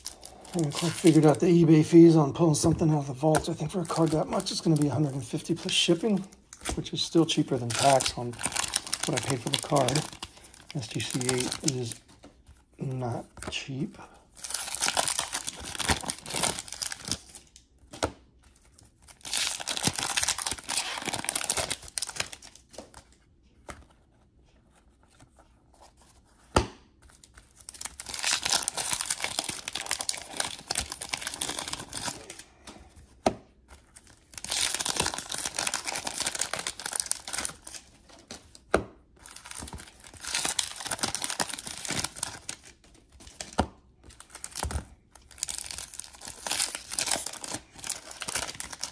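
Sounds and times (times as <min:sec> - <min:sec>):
wrappers tearing and crinkling: 0:00.0 - 0:02.1, 0:02.8 - 0:12.1, 0:14.4 - 0:17.6, 0:18.6 - 0:23.2, 0:27.1 - 0:32.5, 0:33.9 - 0:38.5, 0:39.2 - 0:48.9
cards being handled: 0:20.5 - 0:40.2.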